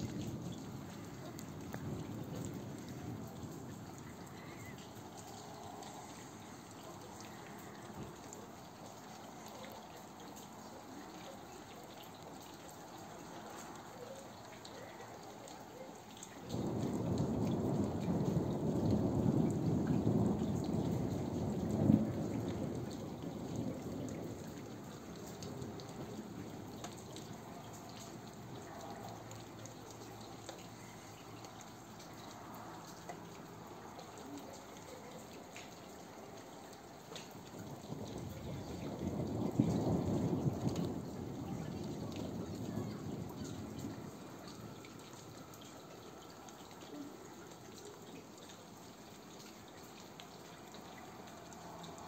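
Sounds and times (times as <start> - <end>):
thunder rumbling: 0.0 - 9.0, 15.6 - 34.4, 35.2 - 46.3
light rain: 0.0 - 52.0.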